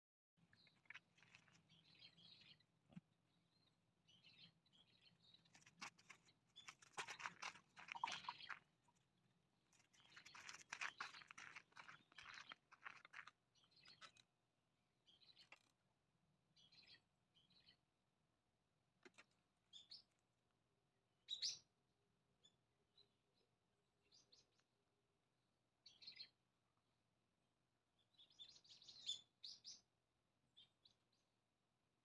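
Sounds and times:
small birds chirping: 0.4 - 14.3, 15.0 - 15.8, 16.5 - 17.9, 19.1 - 20.2, 21.2 - 21.7, 22.4 - 24.7, 25.8 - 26.4, 28.0 - 29.9, 30.5 - 31.3.

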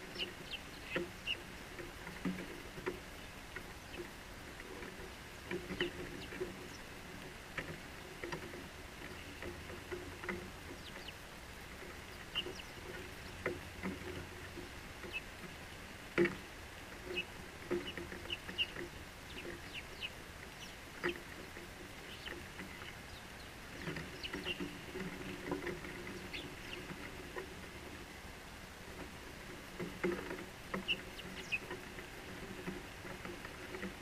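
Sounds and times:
sparrows chirping: 0.0 - 1.6, 5.6 - 6.9, 10.7 - 11.2, 11.9 - 13.4, 15.0 - 15.3, 17.1 - 21.2, 22.0 - 24.7, 26.0 - 27.1, 30.8 - 31.8
birds tapping on wooden rail: 0.0 - 34.0.

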